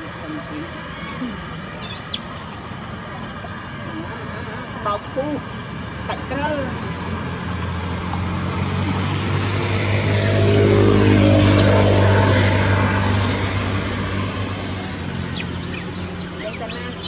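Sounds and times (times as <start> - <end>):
engine passing by: 6.6 - 17.0.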